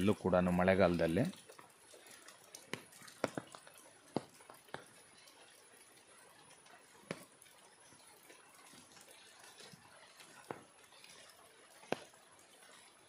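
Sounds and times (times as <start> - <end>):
sharp taps and clicks: 2.7 - 4.9.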